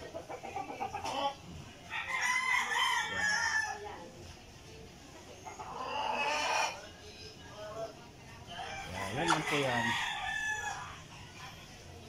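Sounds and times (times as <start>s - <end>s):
rooster crowing: 1.9s - 3.8s, 8.6s - 11.0s.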